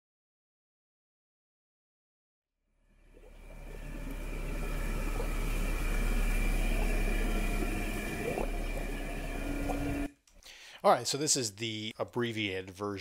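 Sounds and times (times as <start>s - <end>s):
low rumbling drone: 3.0s - 10.1s.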